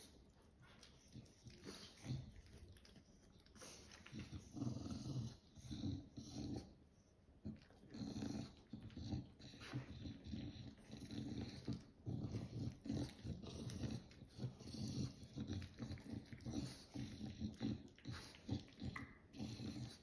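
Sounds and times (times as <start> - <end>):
dog snuffly breaths: 0.0 - 20.0
dog grumbling with low growls: 4.0 - 6.8, 7.5 - 20.0.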